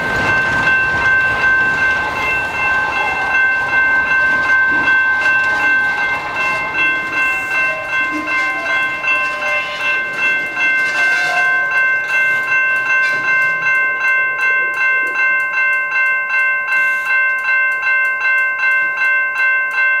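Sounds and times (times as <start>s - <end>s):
freight train rumbling: 0.0s - 15.4s
crossing bell ringing: 0.0s - 20.0s.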